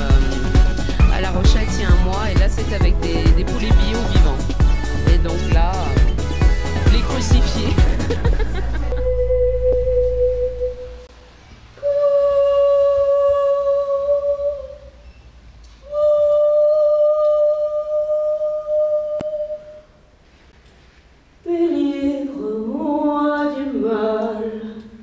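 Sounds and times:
woman singing wordless notes: 11.8 - 15.0, 15.8 - 19.9, 21.4 - 25.0.

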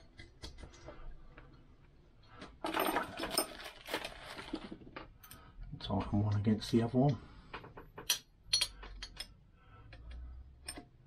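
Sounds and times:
steel parts clinking: 6.3 - 11.0.

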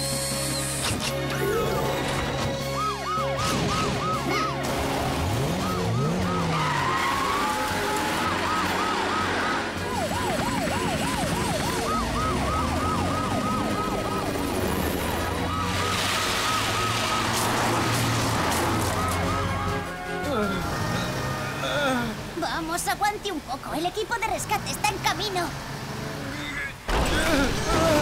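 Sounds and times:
siren yelping: 2.6 - 4.6, 5.3 - 19.7.

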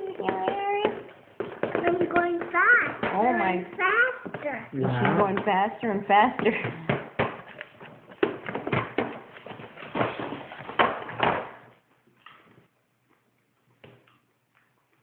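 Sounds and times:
plastic bowl clattering on tray: 0.1 - 3.6.

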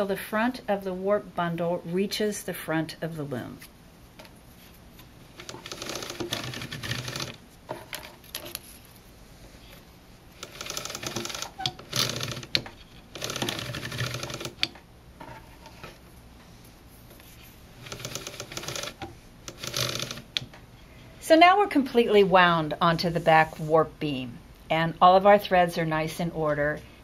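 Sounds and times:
loom ratchet clicking: 5.4 - 7.4, 10.4 - 14.7, 17.8 - 20.5.

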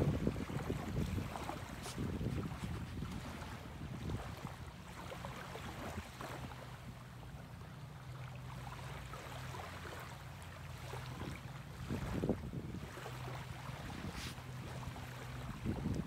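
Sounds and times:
wind on microphone: 0.0 - 6.7, 11.0 - 16.0
small waves lapping: 0.0 - 16.0.

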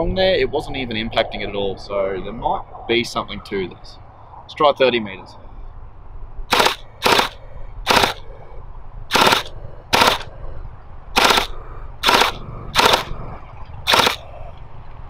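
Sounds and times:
gel blaster shots: 6.5 - 8.2, 9.1 - 10.3, 11.2 - 13.2, 13.8 - 14.4.

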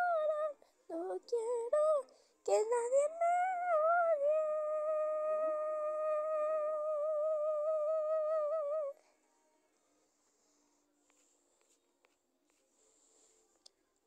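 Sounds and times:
girl singing long note: 0.0 - 9.0.

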